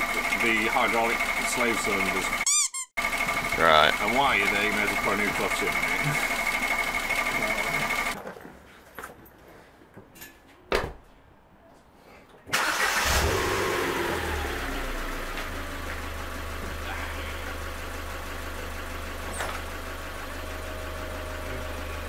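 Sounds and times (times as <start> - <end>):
car engine starting and idling: 0.0 - 2.4, 3.0 - 8.2, 12.5 - 22.0.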